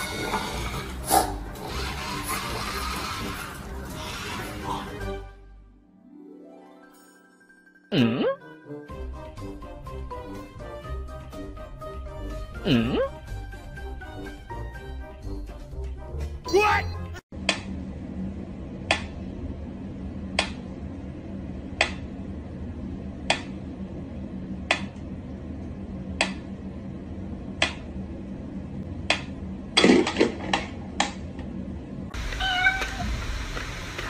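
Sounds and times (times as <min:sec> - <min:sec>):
cat meowing: 0:32.2 - 0:33.2.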